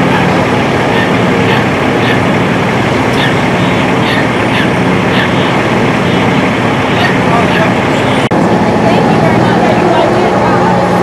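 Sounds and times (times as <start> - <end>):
diesel engine idling: 0.0 - 11.0
freeway traffic: 0.0 - 11.0.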